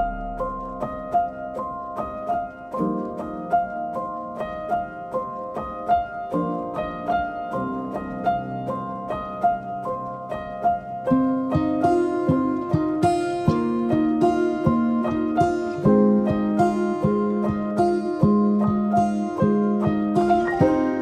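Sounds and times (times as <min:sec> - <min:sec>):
plucked notes over held chords: 0:00.0 - 0:02.1, 0:11.5 - 0:21.0.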